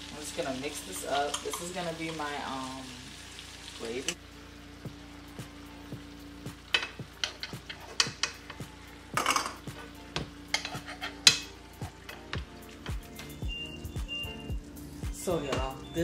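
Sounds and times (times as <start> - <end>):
spoon scraping frying pan: 6.7 - 8.6, 9.2 - 12.4.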